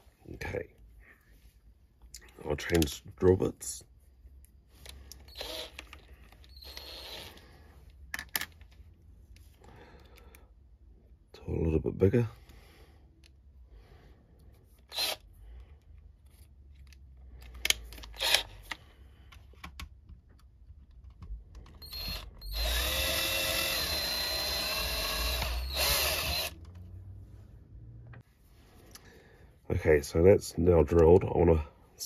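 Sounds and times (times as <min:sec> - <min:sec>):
cordless drill whining: 0:05.1 - 0:07.5, 0:14.9 - 0:15.3, 0:18.2 - 0:18.5, 0:21.8 - 0:26.6.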